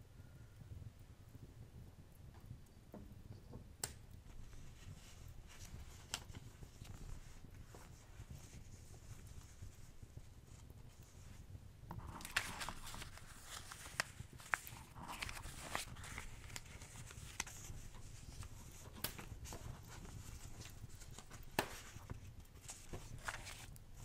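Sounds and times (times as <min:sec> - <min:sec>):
wood fire crackling: 0:03.7 - 0:24.0
paper rustling: 0:04.3 - 0:24.0.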